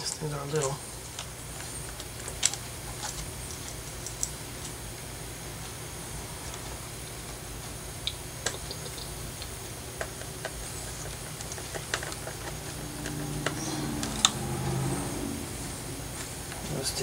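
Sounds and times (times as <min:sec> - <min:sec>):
low hum: 0:09.0 - 0:17.0.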